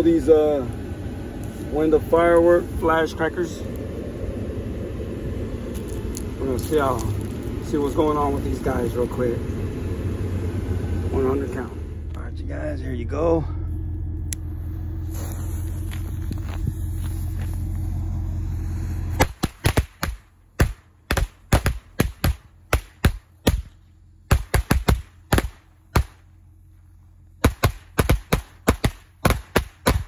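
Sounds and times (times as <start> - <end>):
low rumble: 0.0 - 24.3
firecrackers banging: 19.0 - 23.7, 27.4 - 30.0.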